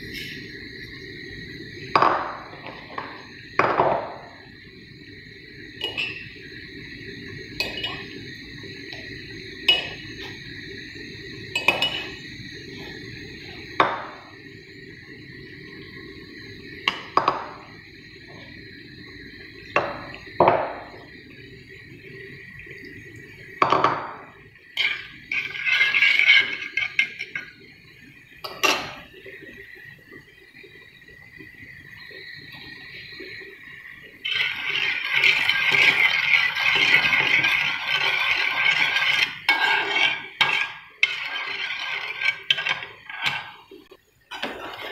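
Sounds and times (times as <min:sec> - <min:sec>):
steady high-pitched hum: 0:00.0 - 0:44.9.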